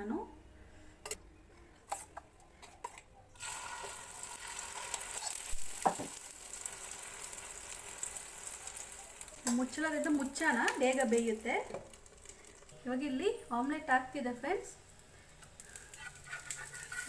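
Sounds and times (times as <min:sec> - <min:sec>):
batter sizzling on hot pan: 0:03.4 - 0:17.0
spoon scraping: 0:15.7 - 0:17.0.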